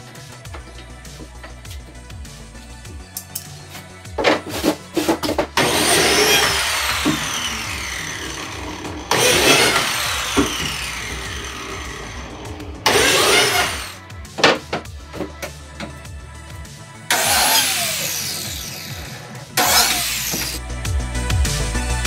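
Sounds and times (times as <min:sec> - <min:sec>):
biscuit joiner motor whining: 0:05.6 - 0:14.0, 0:17.1 - 0:20.6.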